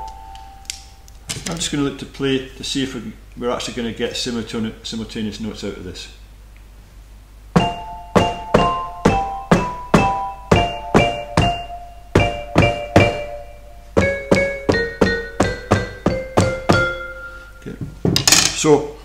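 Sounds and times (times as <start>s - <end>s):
xylophone chords: 0.0s - 1.0s, 7.6s - 17.8s.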